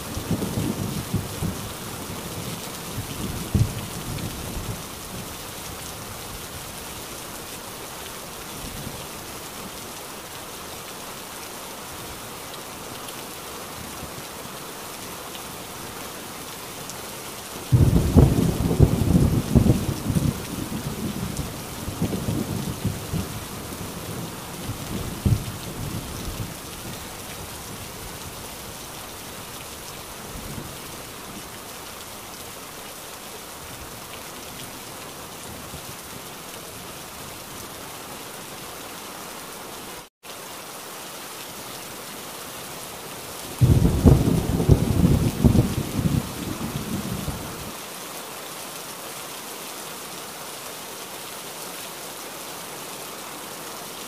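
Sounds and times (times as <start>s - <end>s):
heavy rain: 0.0s - 54.0s
loud thunderclap: 17.7s - 20.4s, 43.6s - 47.2s
thunder rumbling: 17.7s - 26.1s, 43.6s - 47.6s.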